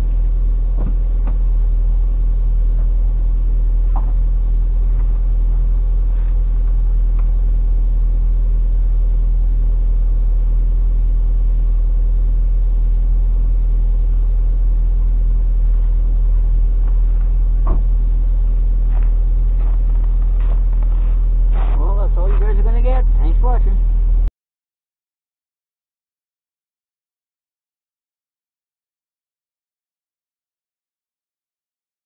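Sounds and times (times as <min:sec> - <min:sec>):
car engine idling: 0:00.0 - 0:24.3.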